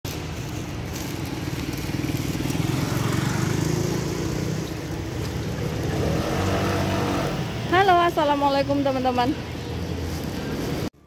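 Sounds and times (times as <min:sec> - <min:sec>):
small motorcycle engine running: 0:00.9 - 0:07.4.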